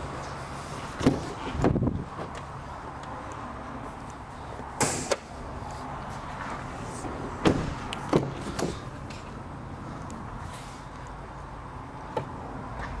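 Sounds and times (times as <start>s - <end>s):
sharp knocks and clunks: 7.4s - 8.8s.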